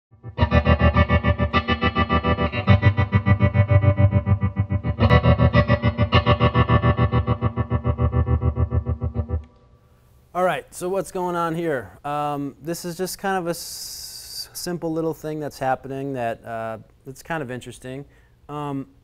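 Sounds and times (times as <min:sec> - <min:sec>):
electric guitar chords with tremolo: 0:00.1 - 0:09.7.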